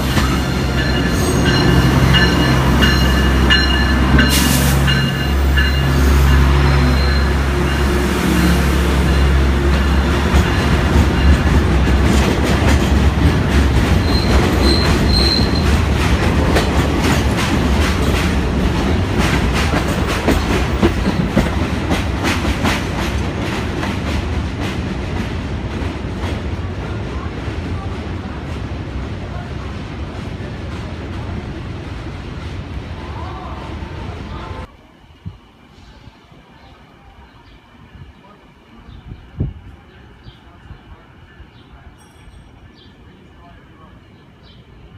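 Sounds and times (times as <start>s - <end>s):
diesel locomotive engine humming: 0.0s - 44.9s
train wheels clattering over rail joints: 9.8s - 26.4s
wheel squeal: 14.0s - 15.8s.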